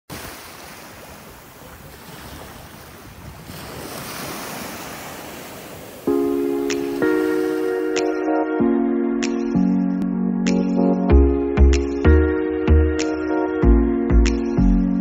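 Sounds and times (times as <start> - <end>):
surf washing onto beach: 0.1 - 8.0
wind on microphone: 1.0 - 6.1
music with sustained chords: 6.1 - 15.0.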